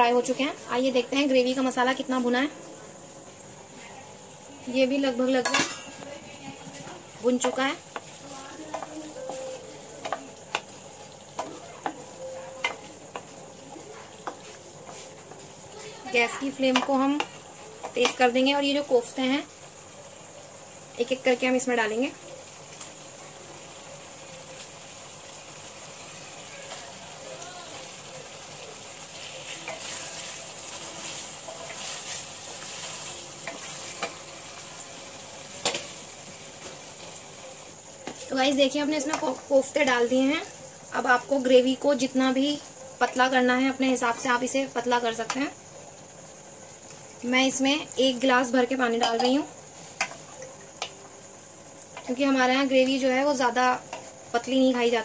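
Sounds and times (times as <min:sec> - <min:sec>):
masala sizzling: 0:00.0 - 0:55.0
spatula scraping metal pan: 0:29.2 - 0:34.1.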